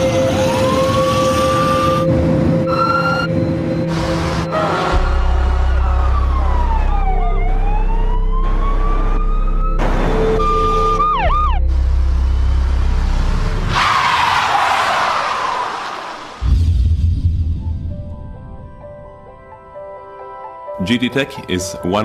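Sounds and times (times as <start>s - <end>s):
siren wailing and yelping: 0.0s - 4.9s, 5.7s - 11.7s
low steady drone: 0.0s - 13.7s.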